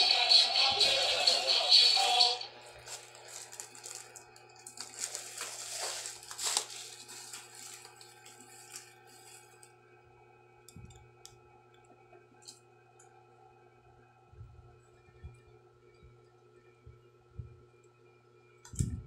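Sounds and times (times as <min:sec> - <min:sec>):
plastic wrapping rustling: 0:02.7 - 0:09.7.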